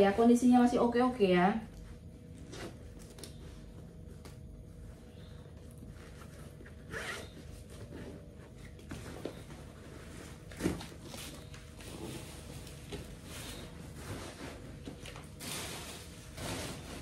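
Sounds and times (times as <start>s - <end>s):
backpack rustling: 5.9s - 8.2s.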